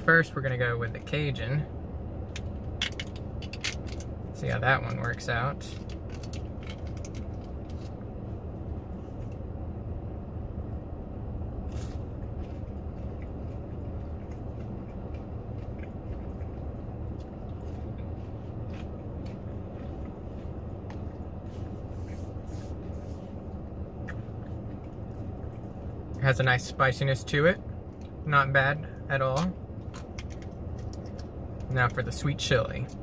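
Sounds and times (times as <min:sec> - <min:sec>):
person chewing: 0:11.7 - 0:26.2.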